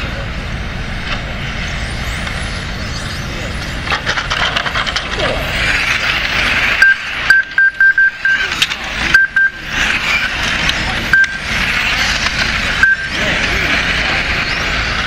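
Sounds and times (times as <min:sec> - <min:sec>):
electric rc cars whining: 0:00.0 - 0:15.0
short high beeps: 0:06.8 - 0:08.5, 0:09.1 - 0:10.3, 0:11.1 - 0:11.5, 0:12.8 - 0:13.2.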